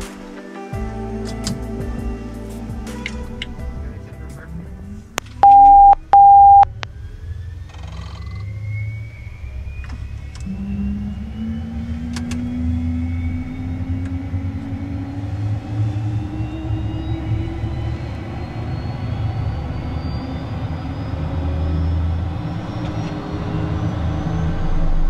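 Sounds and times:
cockpit beeps: 5.4 - 6.7
jet engine spooling up: 6.9 - 25.0.

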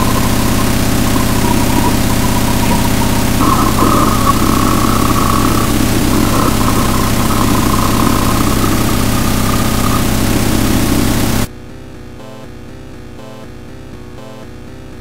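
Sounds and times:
harsh distorted noise with drone: 0.0 - 11.5.

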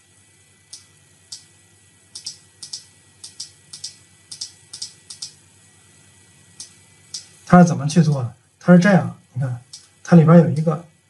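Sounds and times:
mouse and keyboard clicking: 2.2 - 5.4.

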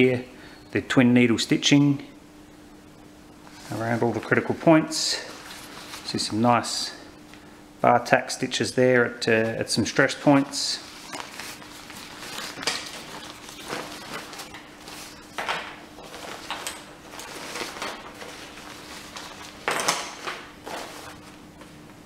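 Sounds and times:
nylon sack rustling: 10.8 - 15.4.

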